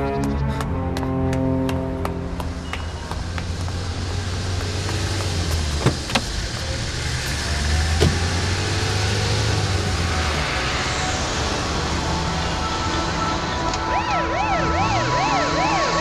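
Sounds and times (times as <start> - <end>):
car engine running: 0.9 - 10.9
car doors shutting: 5.4 - 8.5.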